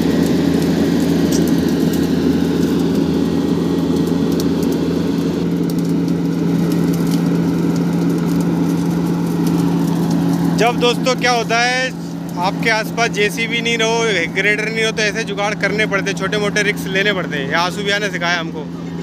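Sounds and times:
diesel engine running: 0.0 - 19.0
light clicks and crackles: 0.1 - 3.1, 3.9 - 4.8, 5.4 - 11.6.

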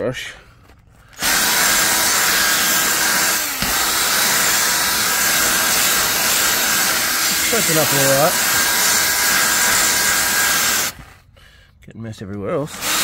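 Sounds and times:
drill brush scrubbing upholstery: 1.2 - 11.2, 12.7 - 13.0.

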